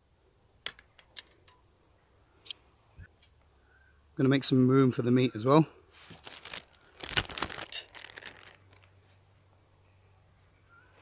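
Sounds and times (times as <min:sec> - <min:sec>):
plastic packaging crinkling: 0:06.0 - 0:08.9.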